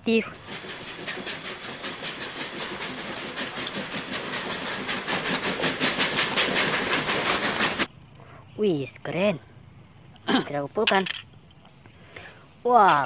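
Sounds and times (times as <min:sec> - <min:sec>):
steam locomotive chuffing: 0:00.2 - 0:07.9
hissing steam: 0:00.3 - 0:07.9.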